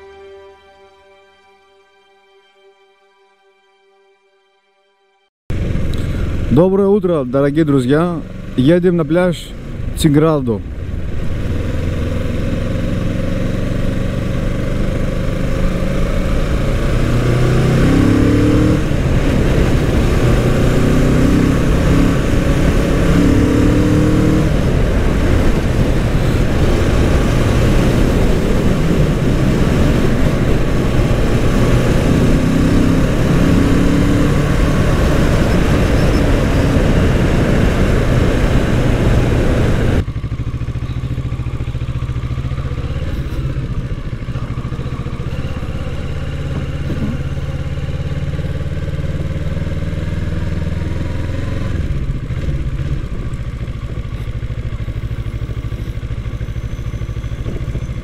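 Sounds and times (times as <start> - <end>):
motorcycle engine revving: 5.5 - 58.0
wind rushing on microphone: 24.0 - 40.0.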